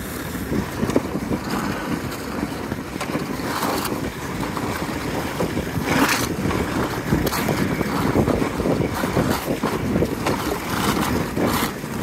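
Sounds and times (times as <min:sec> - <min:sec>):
toboggan scraping over snow: 0:00.0 - 0:12.0.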